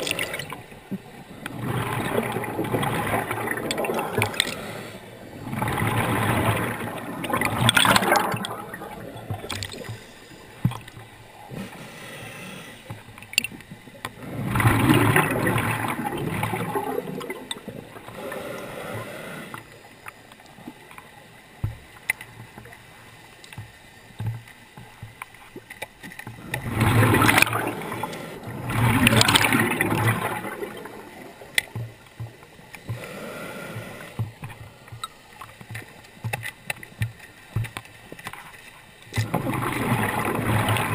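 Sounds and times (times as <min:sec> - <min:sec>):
exhaled bubbles rushing: 0:01.3 - 0:10.1, 0:14.2 - 0:18.2, 0:26.4 - 0:32.0, 0:39.2 - 0:40.9.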